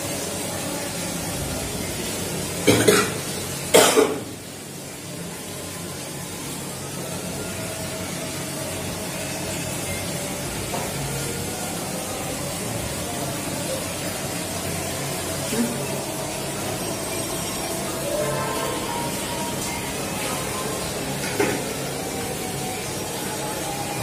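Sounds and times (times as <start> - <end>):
person coughing: 2.7 - 4.3.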